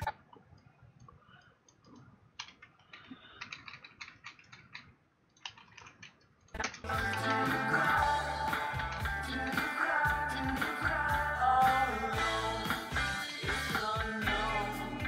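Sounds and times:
keyboard and mouse clicks: 0.0s - 7.5s
rock song playing: 6.8s - 15.0s.

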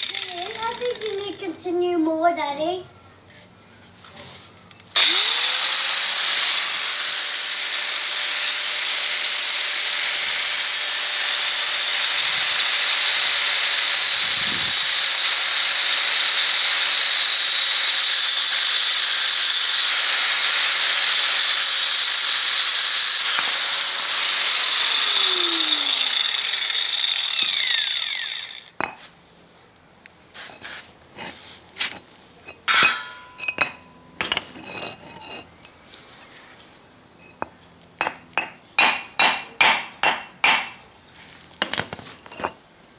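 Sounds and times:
grinder spinning down: 0.0s - 1.4s, 4.9s - 28.8s
angle grinder cutting brick: 0.0s - 1.5s, 4.9s - 29.0s
brick pieces clinking: 41.6s - 42.6s.

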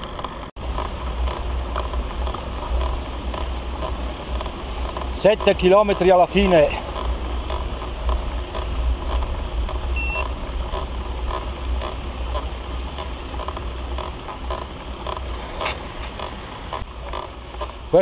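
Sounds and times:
wind and bicycle riding noise: 0.0s - 18.0s
soft regular clicks: 0.1s - 17.8s
short high beep: 10.0s - 10.3s.

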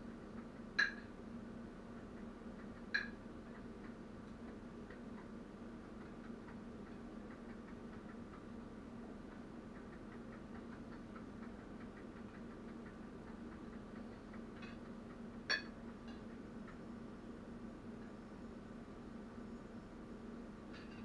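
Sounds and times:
utensil clinking against dish: 15.5s - 16.2s.

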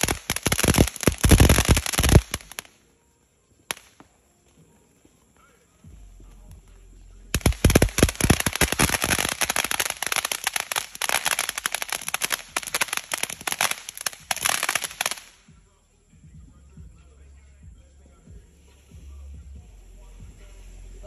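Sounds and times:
firecrackers popping: 0.0s - 2.9s, 3.6s - 6.7s, 7.3s - 15.6s.

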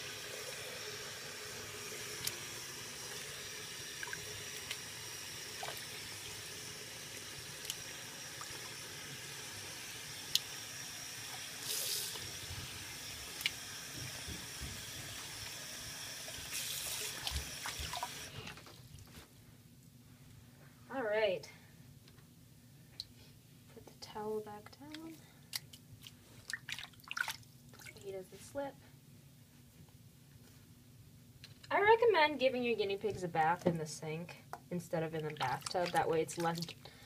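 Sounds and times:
tap water running into sink: 0.0s - 18.3s
small splashes and clicks: 24.9s - 28.0s, 35.2s - 36.8s.

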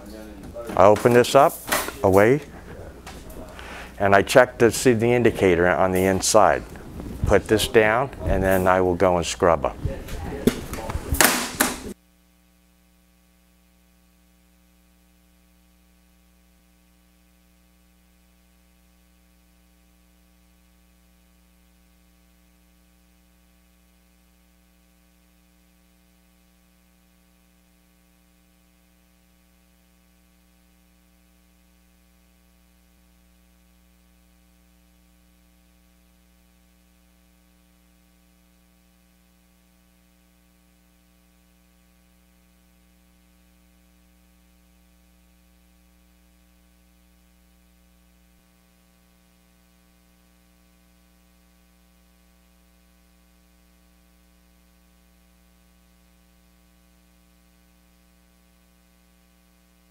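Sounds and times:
voice: 0.0s - 12.0s
low mains hum: 0.0s - 59.9s.

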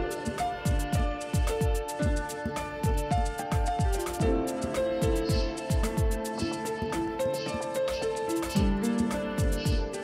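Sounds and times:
electronic kick-drum thumps: 0.0s - 6.4s, 8.5s - 9.9s
light ticking percussion: 0.0s - 10.0s.

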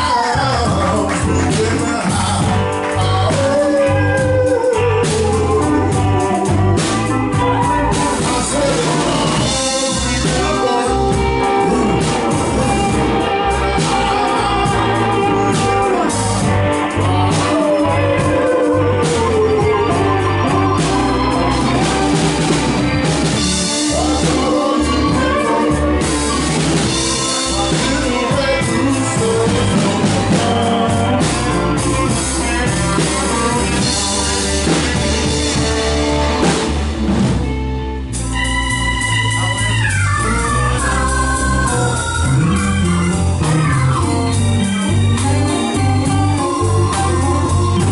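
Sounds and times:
live blues band playing: 0.0s - 47.9s
organ keyboard: 0.0s - 47.9s.

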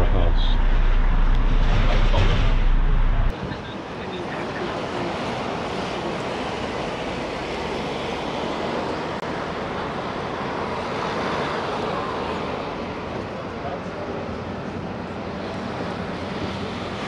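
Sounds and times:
vehicle rushing noise: 0.0s - 4.0s.

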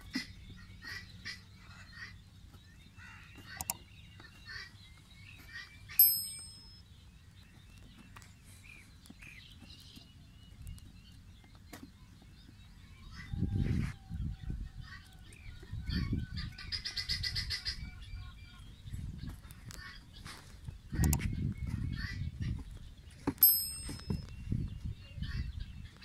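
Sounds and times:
birds calling faintly: 0.0s - 26.0s
bright bell ding: 6.0s - 6.8s, 23.4s - 24.4s
sharp click: 21.0s - 21.3s.

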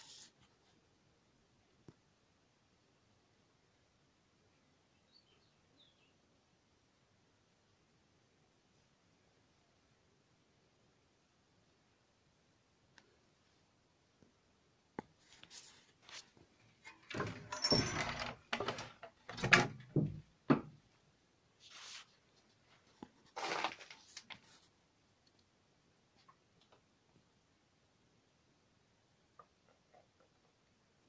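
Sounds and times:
knocks and thuds: 17.1s - 20.8s
scraping sounds: 21.6s - 24.7s.

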